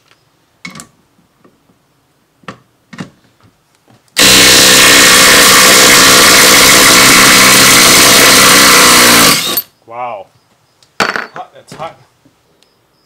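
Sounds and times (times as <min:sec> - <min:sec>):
impact driver hammering screw: 0:04.2 - 0:09.7.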